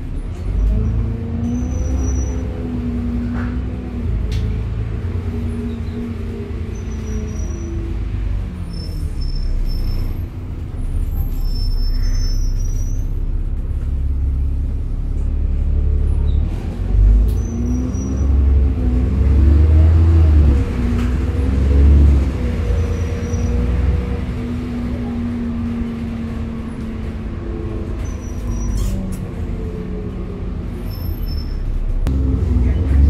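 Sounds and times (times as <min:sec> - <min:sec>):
bus engine rumble: 0:00.0 - 0:33.0
faint high squeaks: 0:11.0 - 0:13.2, 0:27.9 - 0:29.3, 0:30.8 - 0:31.8.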